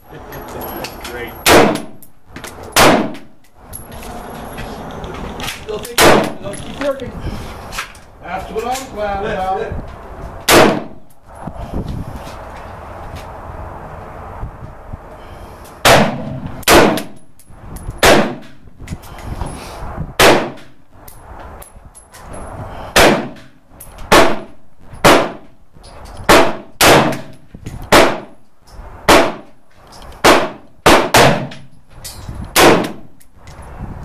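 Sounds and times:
rifle shots: 0:01.5 - 0:02.0, 0:02.8 - 0:03.3, 0:06.0 - 0:06.4, 0:10.5 - 0:11.0, 0:15.8 - 0:17.2, 0:18.0 - 0:18.6, 0:20.2 - 0:20.6, 0:23.0 - 0:23.4, 0:24.1 - 0:25.4, 0:26.3 - 0:27.3, 0:27.9 - 0:28.3, 0:29.1 - 0:29.5, 0:30.2 - 0:31.6, 0:32.6 - 0:33.1.

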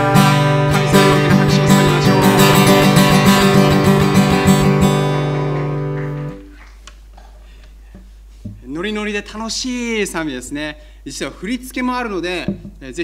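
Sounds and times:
acoustic guitar strumming: 0:00.0 - 0:06.6.

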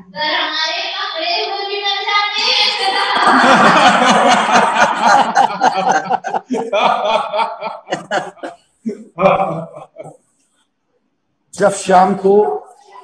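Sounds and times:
people laughing loudly: 0:02.6 - 0:10.1.

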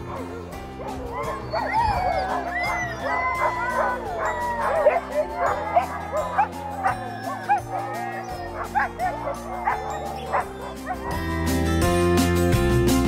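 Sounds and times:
dogs yipping and barking: 0:00.0 - 0:11.8
background music: 0:00.0 - 0:13.0.

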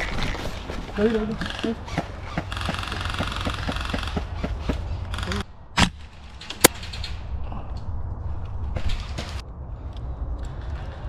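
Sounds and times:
sharp crack: 0:02.4 - 0:07.4.

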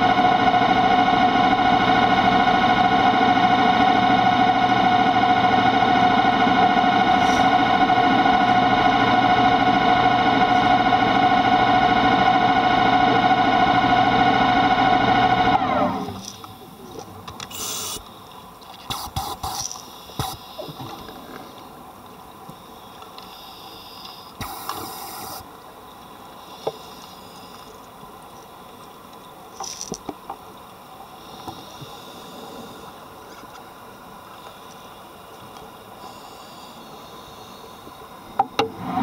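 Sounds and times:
underwater hiss: 0:17.5 - 0:18.3, 0:18.9 - 0:21.6, 0:22.6 - 0:25.5, 0:26.3 - 0:27.8, 0:31.1 - 0:33.1, 0:35.9 - 0:38.2.

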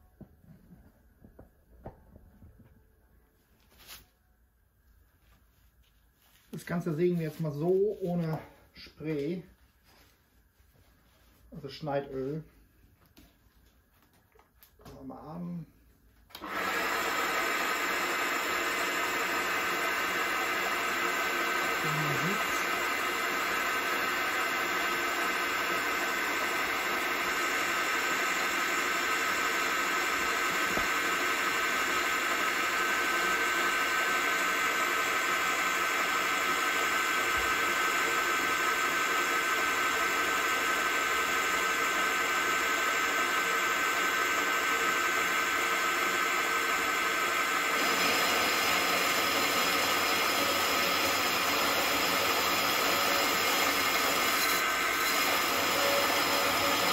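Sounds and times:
band saw cutting metal: 0:20.9 - 0:28.4, 0:47.8 - 0:56.9.

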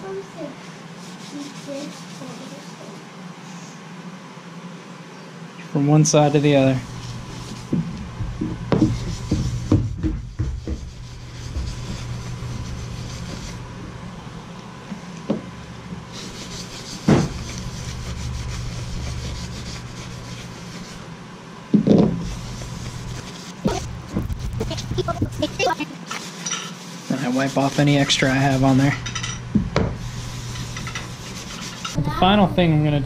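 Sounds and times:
paper towel rubbing: 0:00.9 - 0:03.0, 0:06.8 - 0:14.0, 0:16.1 - 0:21.2, 0:22.2 - 0:29.0, 0:30.0 - 0:32.0
low hum: 0:06.6 - 0:26.0
pieces knocking on rubber mat: 0:07.7 - 0:10.9.

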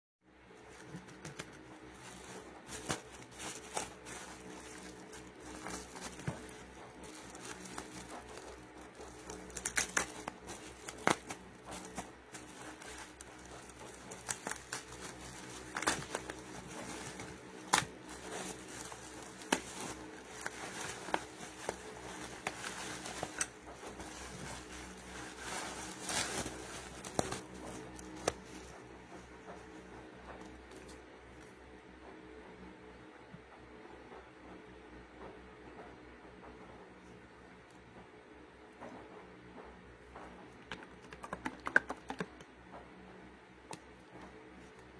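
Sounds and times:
bubble wrap crinkling: 0:00.6 - 0:28.8.

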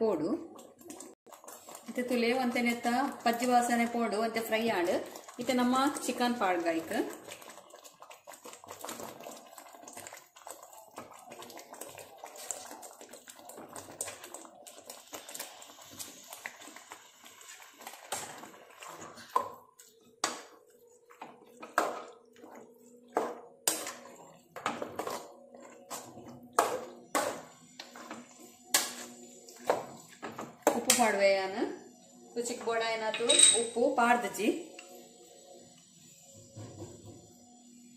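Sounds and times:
chicken sizzling in a pan: 0:01.4 - 0:19.5.

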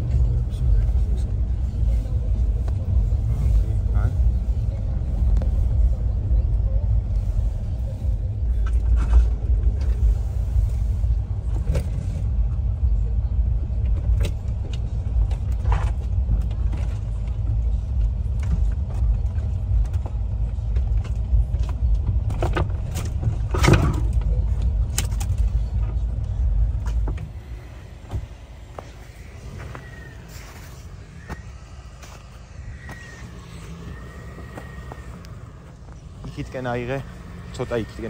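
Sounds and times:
engine and tyres rumbling: 0:00.0 - 0:38.0
vehicle knocks and thumps: 0:13.8 - 0:30.0.

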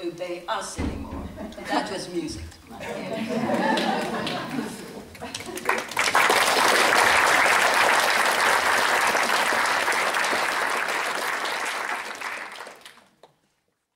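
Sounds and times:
audience applauding: 0:03.4 - 0:13.3.

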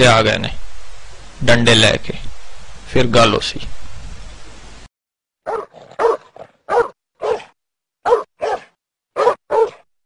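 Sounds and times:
dog barking: 0:05.4 - 0:09.9.

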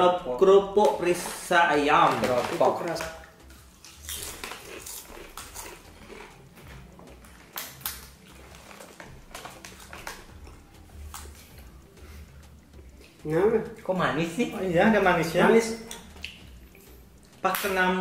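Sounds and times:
people crunching crackers: 0:00.8 - 0:11.8.

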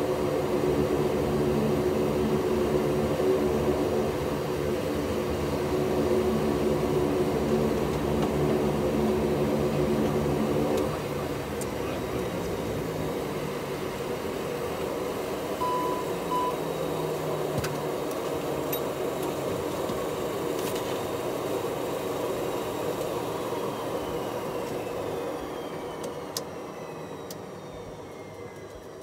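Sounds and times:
turboprop engine drone: 0:00.0 - 0:29.0
short high beeps: 0:15.6 - 0:16.6.

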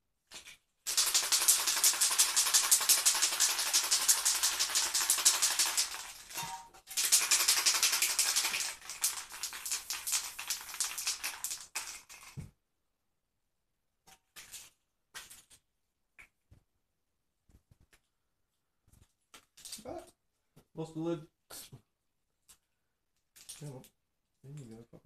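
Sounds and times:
spray can ball rattling: 0:00.3 - 0:12.5.

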